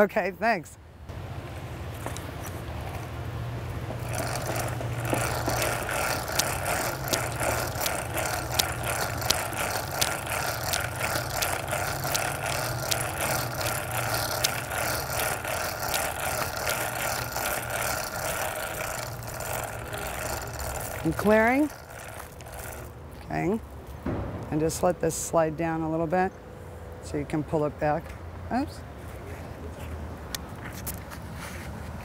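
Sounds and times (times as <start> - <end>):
lever chain hoist ratcheting: 4.0 - 23.0.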